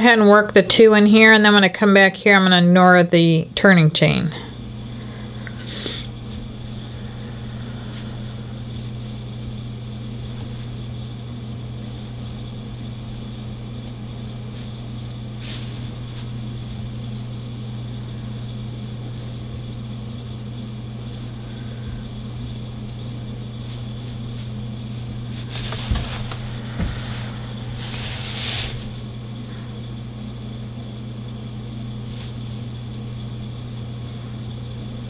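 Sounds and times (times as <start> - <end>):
low electrical hum: 0.0 - 35.0
faint high whine: 4.3 - 35.0
brief rustling: 23.9 - 29.1.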